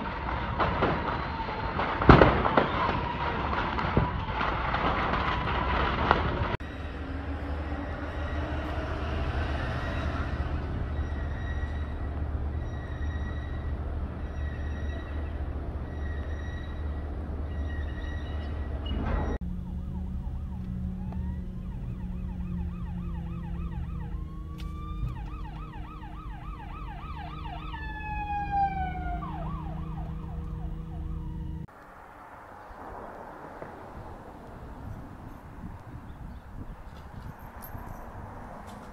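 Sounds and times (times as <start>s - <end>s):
sirens wailing and yelping: 0.0s - 5.6s, 6.6s - 31.7s
steady rumble: 6.4s - 38.9s
car interior low hum: 19.4s - 31.8s.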